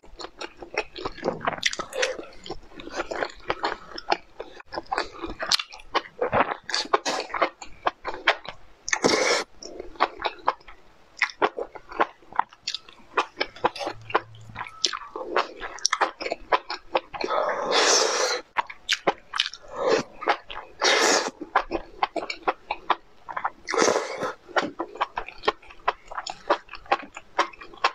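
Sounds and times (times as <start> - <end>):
wet chewing and lip-smacking: 0.1 - 17.4, 18.6 - 27.9
loud noodle slurps: 17.5 - 18.4, 20.8 - 21.4.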